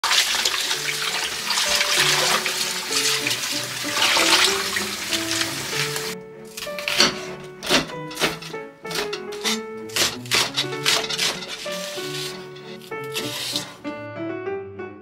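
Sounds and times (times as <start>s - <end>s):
tap water splashing onto lettuce: 0.0s - 6.2s
background music: 0.0s - 15.0s.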